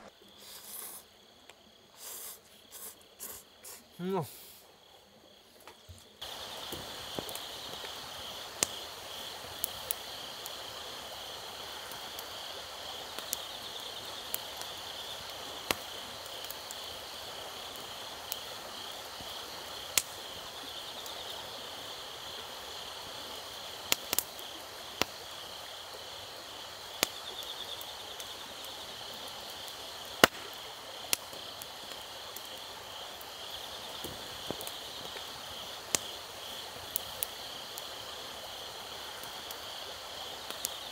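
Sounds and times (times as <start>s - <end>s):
insects chirping: 0.0s - 40.9s
wood fire crackling and popping: 5.7s - 21.9s, 23.1s - 40.9s.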